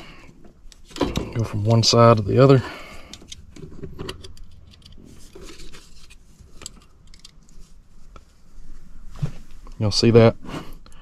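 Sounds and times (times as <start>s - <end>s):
test probes clicking and rattling: 0.6s - 5.1s, 6.4s - 7.6s.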